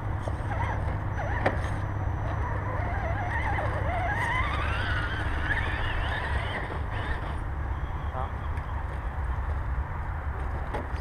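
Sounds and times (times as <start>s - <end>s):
electric motor and gear whine: 0.0s - 11.0s.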